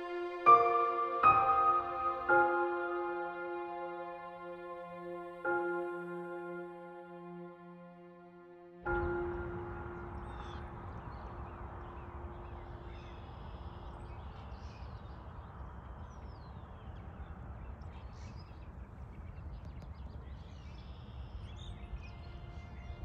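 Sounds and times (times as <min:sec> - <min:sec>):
held musical tone: 0:00.0 - 0:12.4.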